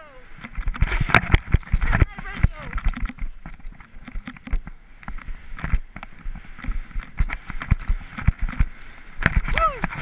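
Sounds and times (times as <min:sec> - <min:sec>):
skis scraping over snow: 0:00.8 - 0:02.8.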